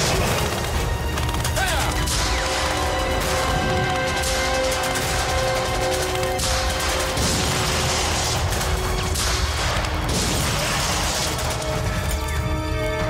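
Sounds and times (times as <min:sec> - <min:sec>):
crashing explosions: 0:02.1 - 0:12.4.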